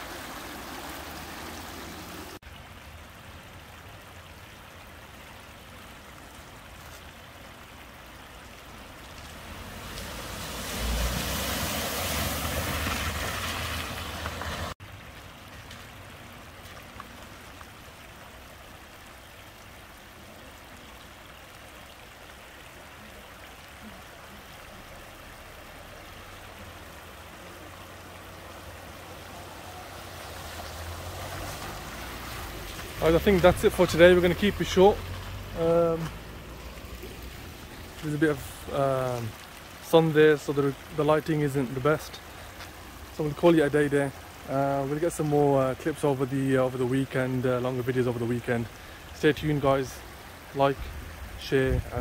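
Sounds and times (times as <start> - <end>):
car tyres splashing through water: 0.0 - 52.0
floodwater rushing: 0.0 - 52.0.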